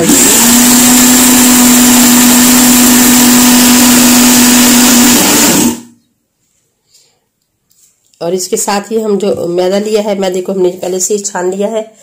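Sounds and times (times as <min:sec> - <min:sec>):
electric blender running: 0:00.0 - 0:05.9.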